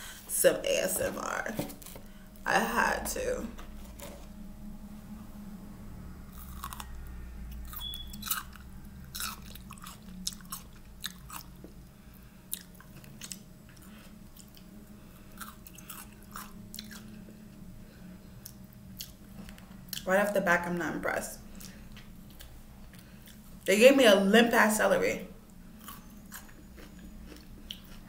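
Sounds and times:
person chewing celery: 6.3 - 17.3, 18.4 - 20.0, 21.5 - 23.7, 25.8 - 28.0.

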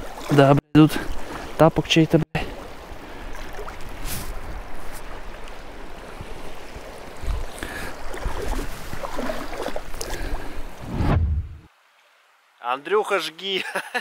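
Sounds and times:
water sloshing around wader: 0.0 - 10.9.

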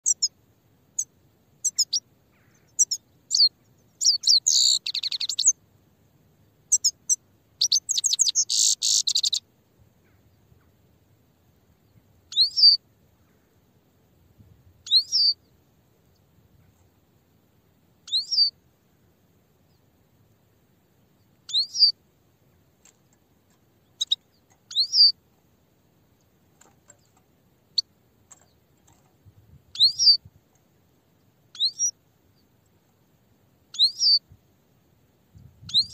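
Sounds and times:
finch twittering song: 0.0 - 5.6, 6.6 - 10.7, 11.7 - 13.5, 14.8 - 16.8, 18.0 - 18.6, 21.2 - 22.0, 22.8 - 25.2, 26.0 - 30.3, 31.2 - 32.7, 33.7 - 34.3, 35.4 - 35.9.

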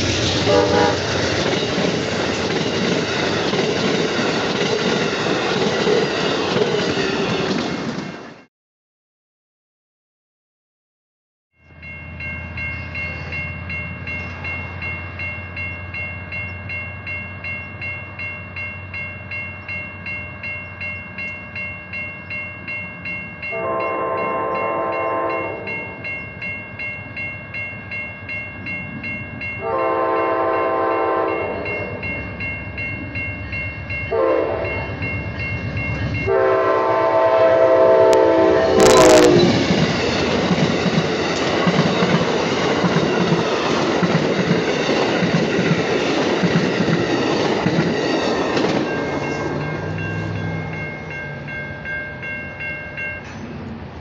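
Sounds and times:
crossing bell ringing: 0.0 - 7.9, 11.6 - 53.8
train passing loudly: 0.0 - 8.5, 11.6 - 54.0
train horn blowing: 0.4 - 1.2, 23.5 - 25.8, 29.6 - 32.0, 34.1 - 35.0, 36.3 - 39.7.

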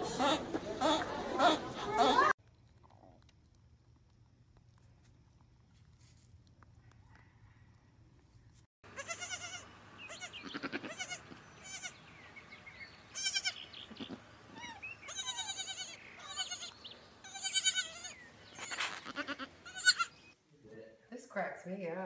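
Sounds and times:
goat kid bleating: 8.9 - 12.0, 13.1 - 20.2.

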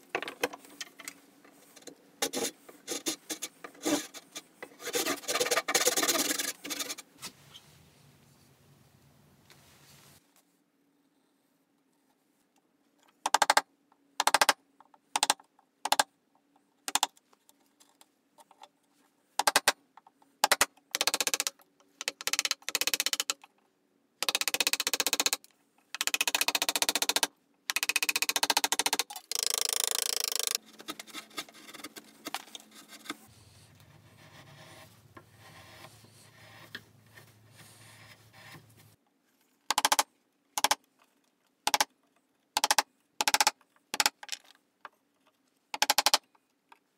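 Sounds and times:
chisel paring and scraping wood: 28.3 - 36.8.

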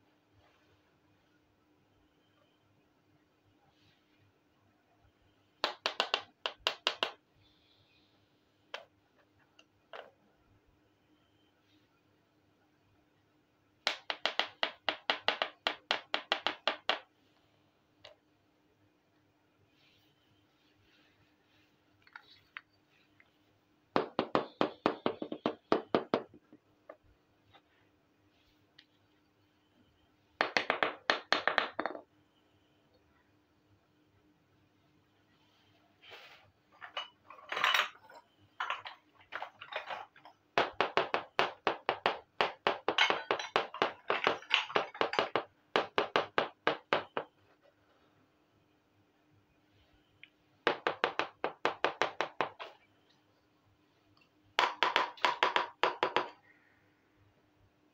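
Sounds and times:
toy pot rubbing and knocking: 36.8 - 47.3.

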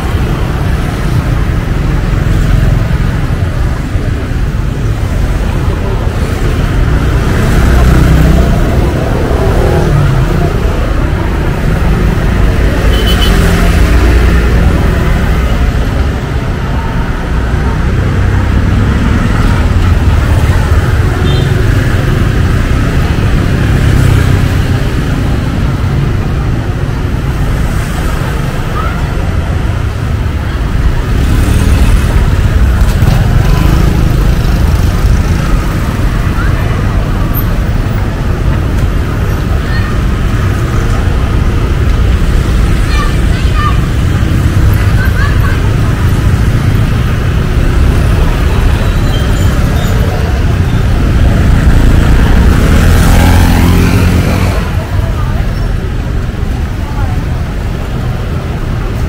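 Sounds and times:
traffic engines and road noise: 0.0 - 59.0
faint voices: 32.0 - 59.0.

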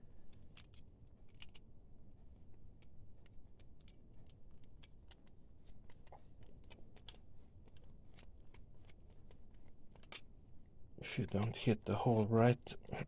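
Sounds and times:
plastic parts clicking and tapping: 0.3 - 1.7, 2.8 - 10.3.

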